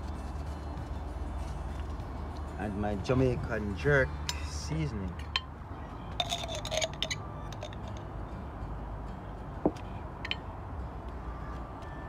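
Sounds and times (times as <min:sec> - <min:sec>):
dishes clicking and tapping: 0:06.2 - 0:08.0, 0:09.6 - 0:10.5.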